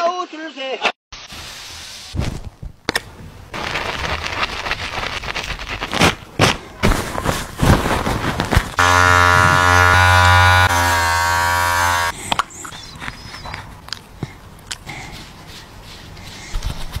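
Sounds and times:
electric trimmer buzzing: 8.8 - 12.2.

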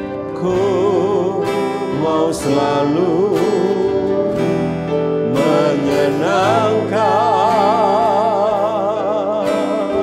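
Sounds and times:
acoustic guitar: 0.0 - 10.0
man singing slowly: 0.0 - 10.0.

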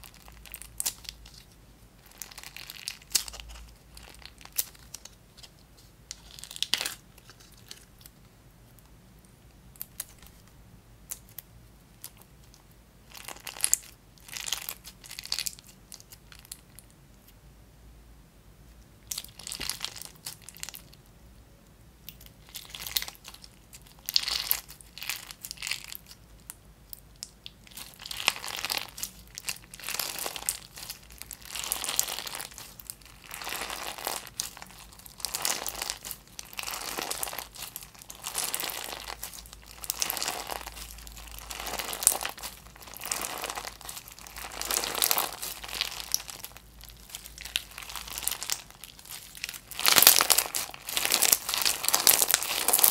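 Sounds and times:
beads crunching and clicking: 27.2 - 52.9.

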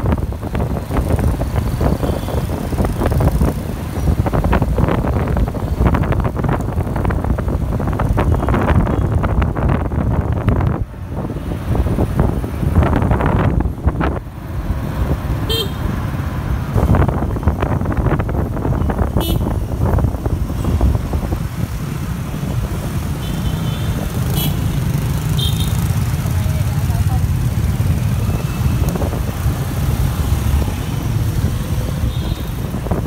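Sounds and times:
low rumble of engines and wind: 0.0 - 33.0
scooter horn beeps: 15.5 - 15.8.

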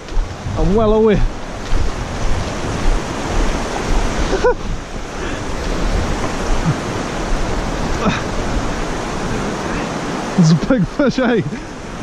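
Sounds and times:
river water rushing over rocks: 0.0 - 12.0.

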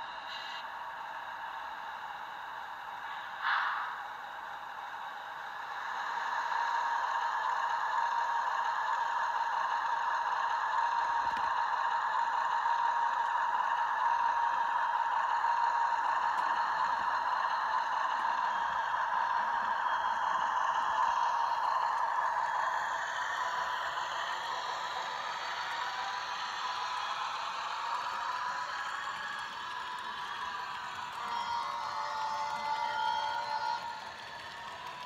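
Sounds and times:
tinny model diesel engine sound: 0.0 - 35.0
short hiss: 3.1 - 4.0.

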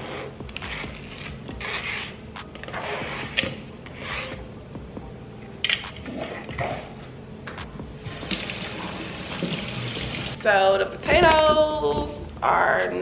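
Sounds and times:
knife scraping cutting board: 0.0 - 4.5.

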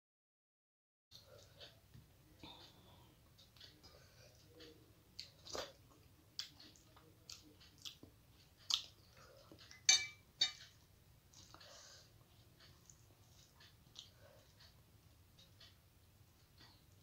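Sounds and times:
chewing food: 3.3 - 9.9, 10.6 - 17.0.

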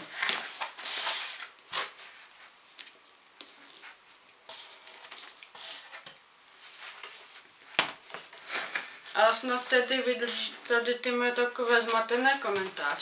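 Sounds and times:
book rubbing and rustling: 0.0 - 2.6, 3.4 - 7.5.

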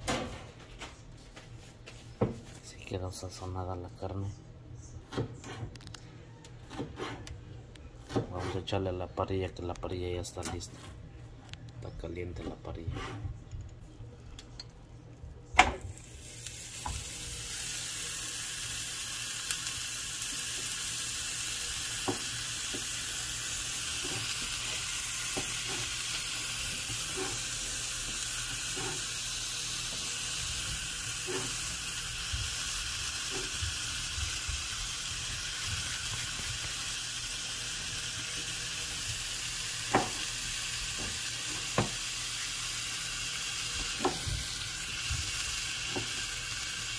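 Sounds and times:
steak sizzling in a pan: 15.9 - 46.9.

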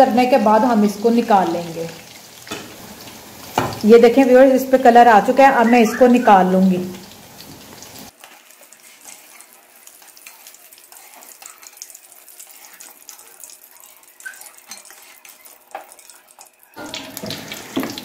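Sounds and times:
chicken frying in hot oil: 0.0 - 18.0
metal spoon knocking on pan: 3.6 - 3.8.

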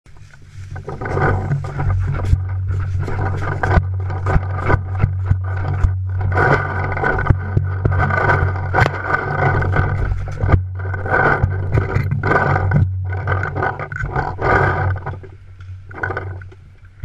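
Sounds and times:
rustling in dry leaves: 0.1 - 13.5
steady low hum: 0.1 - 17.0
gear knocking against camera: 0.7 - 16.6.

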